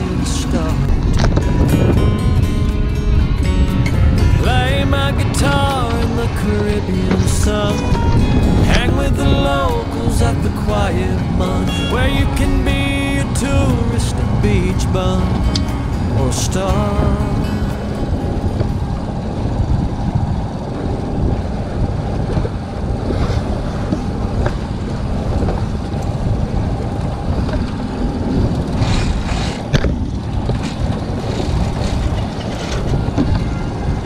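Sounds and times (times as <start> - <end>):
water rushing along hull: 0.0 - 34.0
wind buffeting microphone: 0.0 - 34.0.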